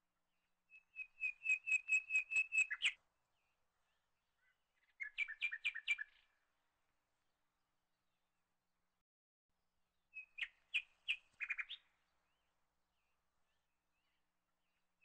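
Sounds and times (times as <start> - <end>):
bird singing chirps: 0.7 - 6.4, 10.1 - 14.8.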